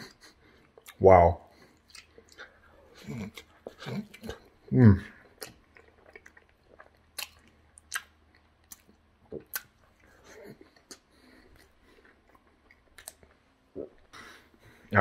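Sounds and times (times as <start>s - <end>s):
person chewing with open mouth: 0.0s - 1.0s, 1.6s - 14.1s
wet lip smacks: 6.9s - 9.8s, 12.9s - 13.3s.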